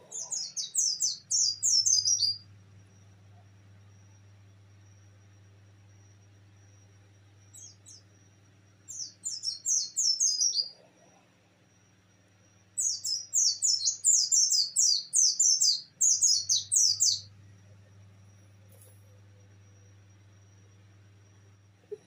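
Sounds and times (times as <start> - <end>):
faint high whine: 0.0 - 22.0
low hum: 16.0 - 22.0.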